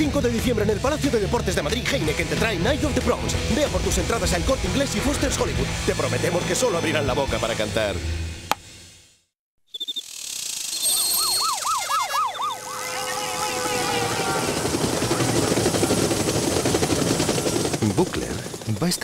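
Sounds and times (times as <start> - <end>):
warbling siren: 10.7 - 16.4
cyclists rushing past: 10.8 - 18.5.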